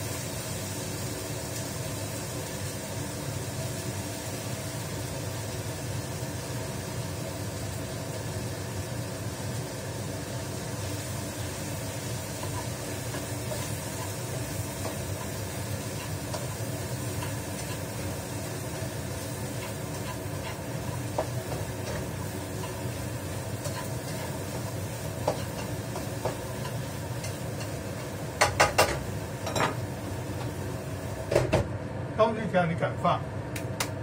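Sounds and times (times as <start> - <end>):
stir-fry sizzling in a pan: 0.0 - 32.1
range hood fan whooshing: 0.0 - 34.0.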